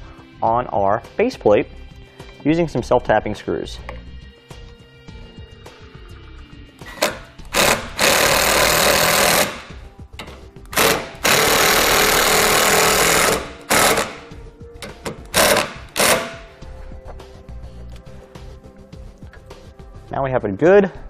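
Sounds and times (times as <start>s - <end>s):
impact driver driving screws: 6.9s - 9.7s, 10.7s - 14.3s, 15.1s - 16.5s.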